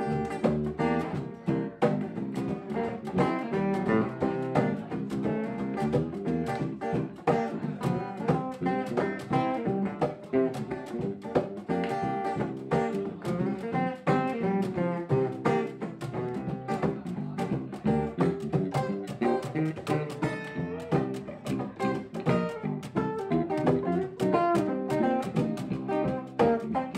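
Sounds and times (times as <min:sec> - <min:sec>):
bass: 0:00.0 - 0:26.9
guitar plucked notes: 0:00.0 - 0:26.9.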